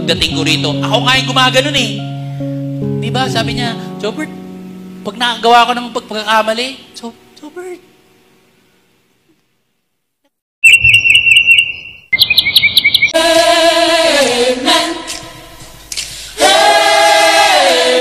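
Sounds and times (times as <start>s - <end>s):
bird chirping trills: 10.6s - 13.2s
choir singing a cappella: 13.2s - 18.0s.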